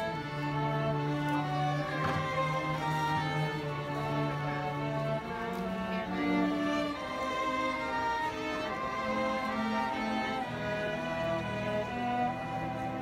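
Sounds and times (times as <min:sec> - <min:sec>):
string orchestra playing: 0:00.0 - 0:13.0.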